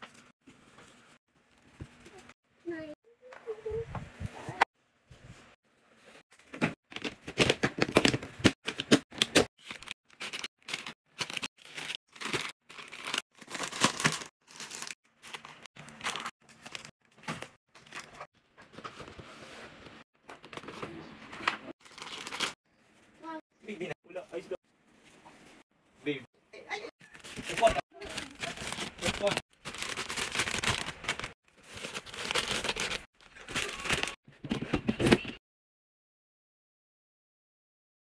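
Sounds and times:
plastic packaging crinkling: 9.6 - 16.9, 27.1 - 34.2.

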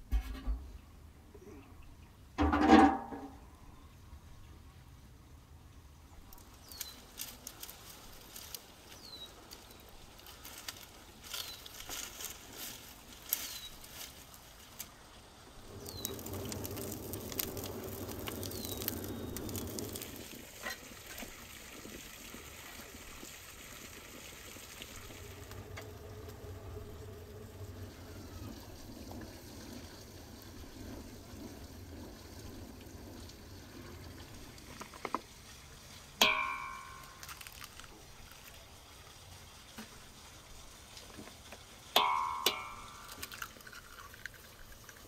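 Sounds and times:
dry branches cracking and snapping: 6.3 - 15.0, 15.8 - 20.2, 36.2 - 38.6.

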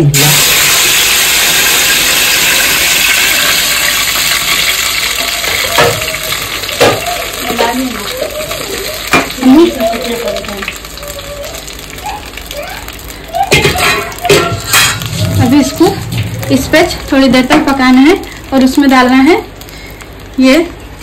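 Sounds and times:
paste sizzling in hot oil: 0.1 - 20.4
wooden spoon knocking on pot: 5.6 - 7.8, 13.5 - 15.4.

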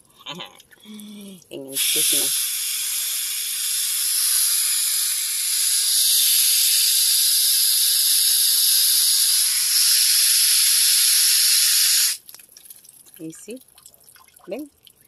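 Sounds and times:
hose nozzle spraying water: 1.7 - 12.4.

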